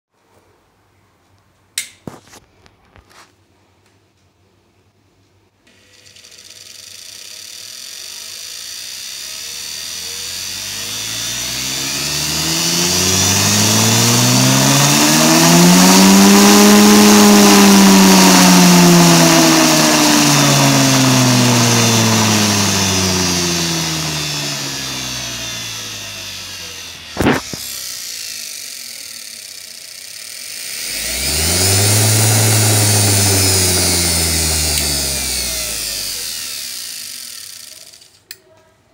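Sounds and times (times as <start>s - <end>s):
sharp click: 1.8s - 2.1s
washing machine motor whining: 5.7s - 38.2s.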